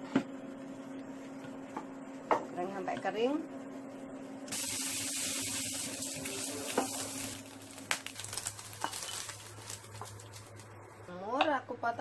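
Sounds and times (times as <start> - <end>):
meat sizzling in a frying pan: 4.5 - 10.4.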